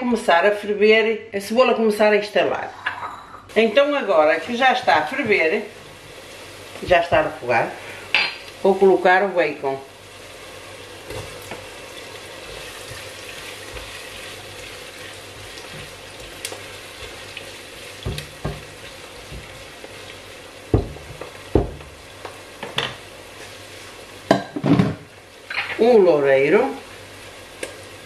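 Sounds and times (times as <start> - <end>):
onion sizzling in oil: 3.5 - 28.0
spatula stirring: 11.0 - 22.4
utensil knocking on pot: 18.0 - 18.7, 20.7 - 22.0.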